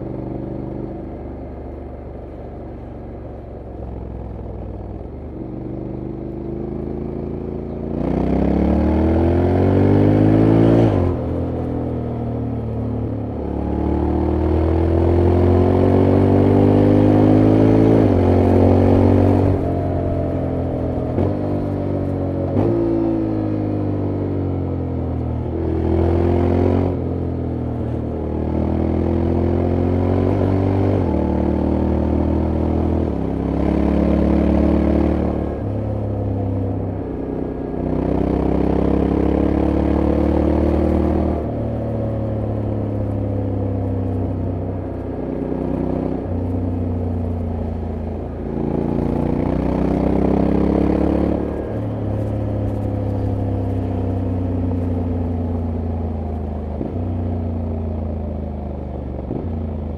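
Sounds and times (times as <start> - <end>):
motorcycle engine revving: 5.4 - 59.9.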